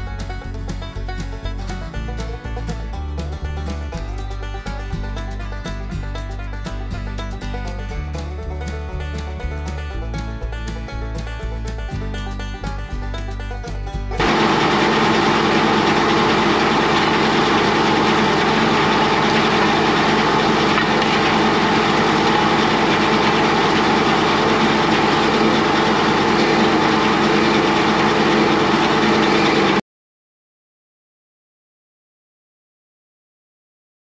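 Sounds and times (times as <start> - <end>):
tractor engine running: 0.0 - 29.8
circular saw blade whirring: 14.2 - 29.8.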